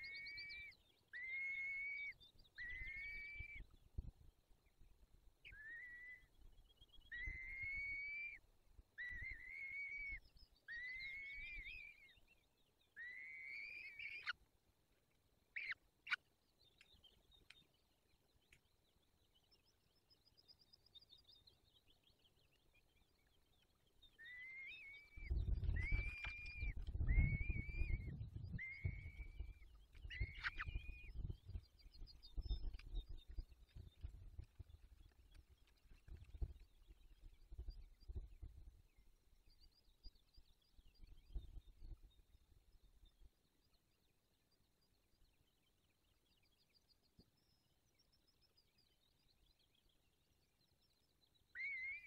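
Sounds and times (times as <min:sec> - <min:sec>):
falcon calling: 0:00.0 - 0:03.7, 0:05.5 - 0:06.3, 0:07.1 - 0:08.4, 0:09.0 - 0:12.1, 0:13.0 - 0:14.4, 0:15.5 - 0:16.2, 0:24.2 - 0:31.3.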